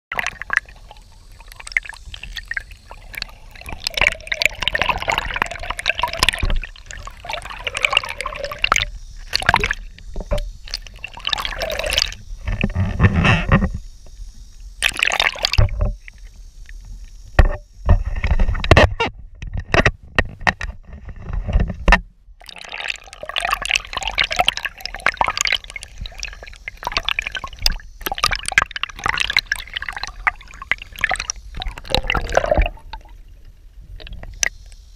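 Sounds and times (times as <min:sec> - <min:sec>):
splashy clicks: 0:00.1 - 0:12.6, 0:14.8 - 0:15.9, 0:22.4 - 0:33.1
low underwater rumbles: 0:00.1 - 0:13.8, 0:21.2 - 0:34.6
water gurgling and sloshing: 0:00.1 - 0:34.9.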